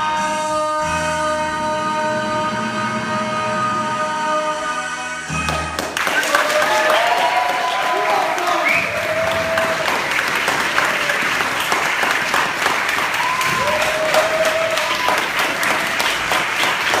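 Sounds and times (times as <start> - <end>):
audience applauding: 5.5 - 17.0.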